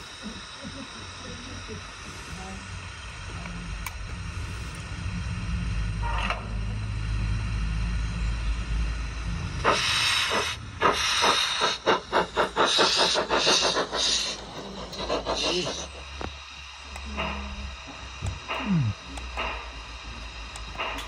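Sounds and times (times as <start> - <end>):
steam hissing: 0.0 - 21.0
steam locomotive exhaust chuffs: 0.0 - 21.0
low steady rumble: 0.2 - 11.0.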